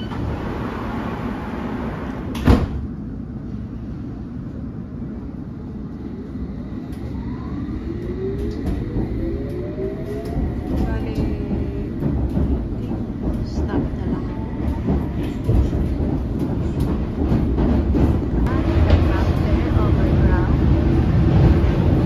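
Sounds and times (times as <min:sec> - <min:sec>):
steady low rumble: 0:00.0 - 0:22.0
train doors shutting thud: 0:01.9 - 0:03.0.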